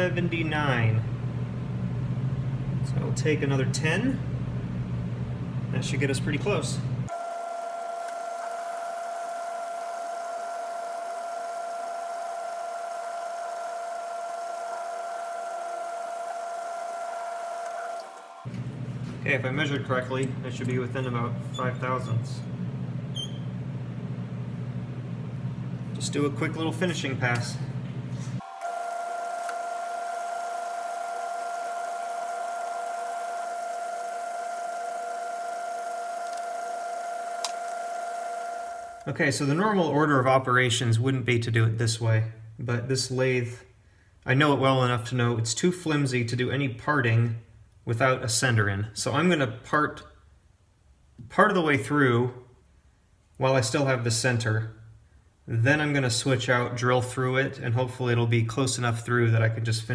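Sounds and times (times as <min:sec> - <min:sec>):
metal lathe running: 0:07.1 - 0:18.5, 0:28.4 - 0:39.0
lathe drive whine: 0:07.1 - 0:18.9, 0:28.4 - 0:39.1.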